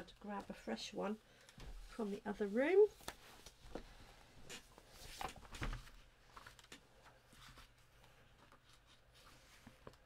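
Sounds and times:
paper rustling: 4.5s - 10.0s.

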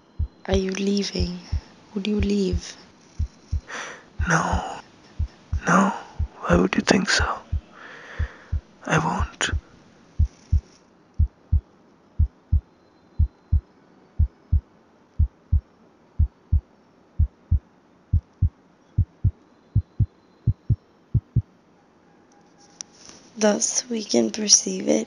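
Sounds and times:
heartbeat double thump: 0.1s - 0.6s, 1.3s - 1.6s, 2.2s - 6.5s, 10.2s - 11.6s, 15.2s - 15.6s, 16.2s - 16.6s, 17.2s - 17.6s, 18.2s - 21.4s.

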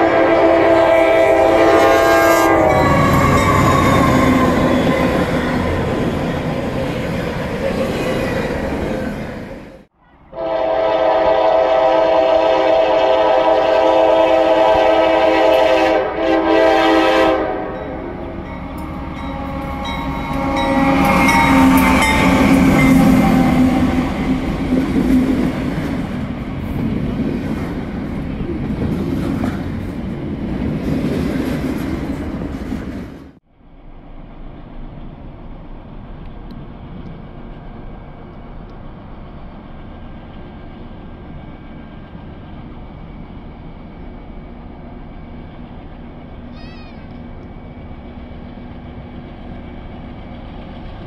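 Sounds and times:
locomotive air horn: 0.0s - 5.2s, 10.0s - 24.5s
train rumble and wheel noise: 0.0s - 51.0s.

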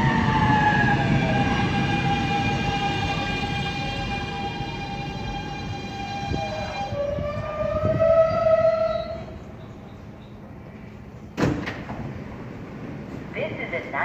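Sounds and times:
subway train traction motor whine: 0.0s - 14.0s
train rumble: 0.0s - 14.0s.

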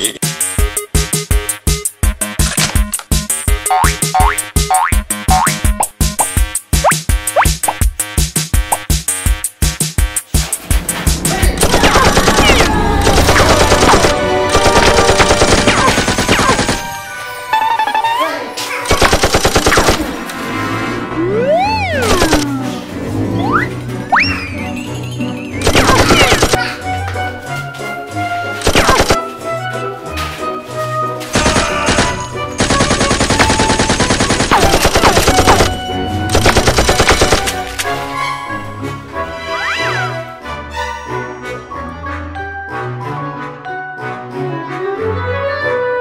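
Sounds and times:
machine-gun fire: 11.6s - 16.9s, 18.9s - 20.2s, 25.6s - 26.6s, 28.6s - 29.2s, 31.4s - 37.6s
rapid automatic gunfire: 11.6s - 16.9s, 18.9s - 20.1s, 25.6s - 26.6s, 28.6s - 29.2s, 31.4s - 37.6s.

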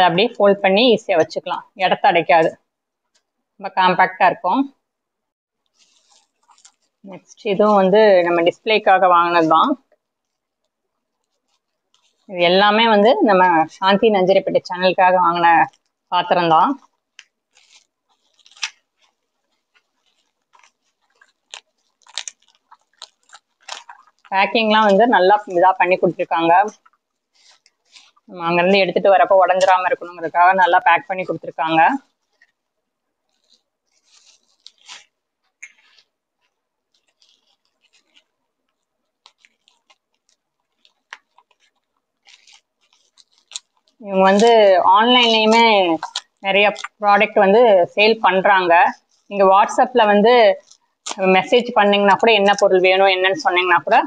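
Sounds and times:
bubble wrap crinkling: 5.6s - 54.0s
scissors cutting wrap: 16.8s - 26.8s, 33.3s - 36.1s, 36.9s - 47.0s.

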